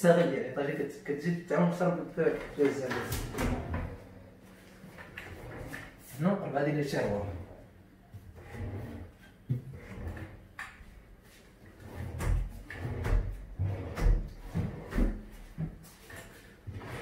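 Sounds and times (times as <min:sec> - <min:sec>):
drawers sliding open and shut: 0:02.3 - 0:04.1, 0:04.9 - 0:06.0, 0:08.3 - 0:10.7, 0:11.6 - 0:15.3, 0:16.0 - 0:17.0.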